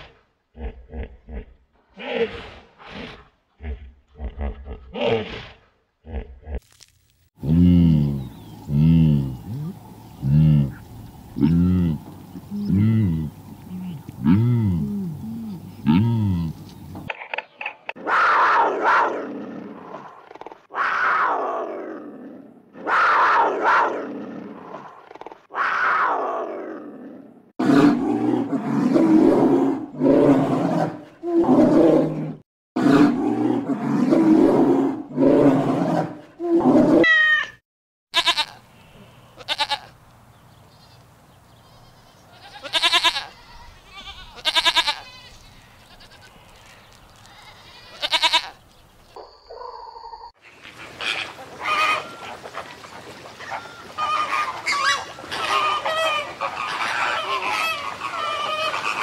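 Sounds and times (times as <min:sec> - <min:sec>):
falling animal calls: 0:49.5 - 0:59.0.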